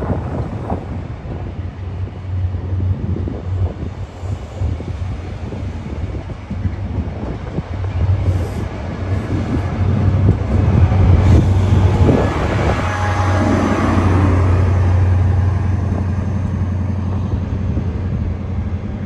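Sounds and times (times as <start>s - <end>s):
diesel engine humming: 7.7s - 19.0s.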